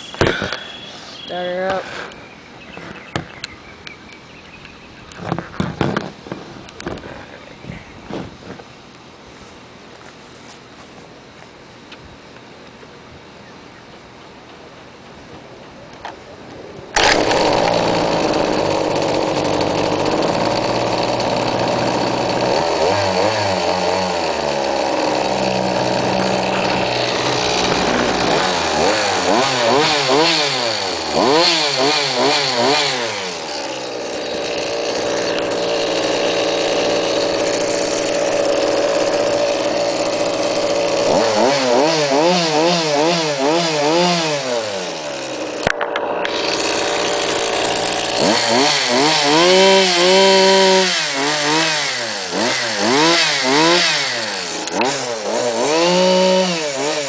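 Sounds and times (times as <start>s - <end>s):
small two-stroke engine revving: 17.0s - 57.0s.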